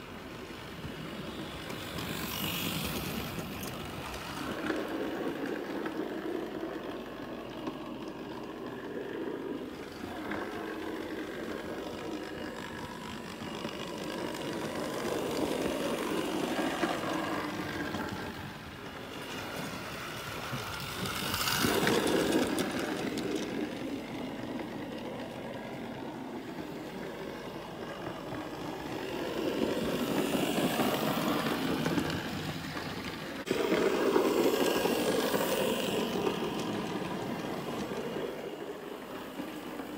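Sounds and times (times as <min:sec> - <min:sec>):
model train motor whirr: 0:00.4 - 0:39.9.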